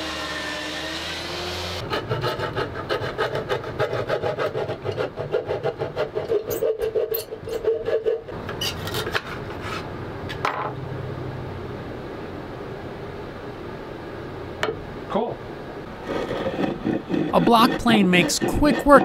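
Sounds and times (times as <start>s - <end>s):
handsaw cutting wood: 0.0s - 8.3s, 16.0s - 19.0s.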